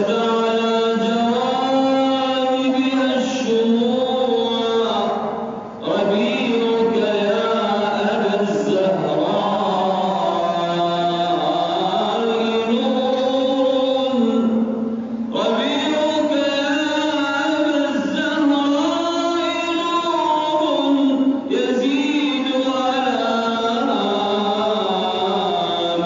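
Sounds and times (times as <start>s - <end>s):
man singing: 0.0s - 26.0s.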